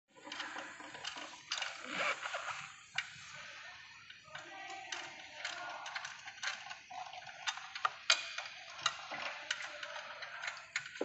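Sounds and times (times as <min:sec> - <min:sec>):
metal parts clicking: 0:04.4 - 0:11.0.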